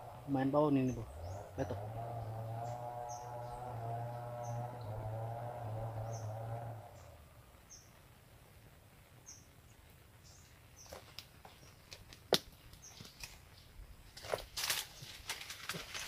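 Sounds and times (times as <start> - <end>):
small bird chirping: 0.3 - 5.0, 5.9 - 8.0, 12.6 - 13.8.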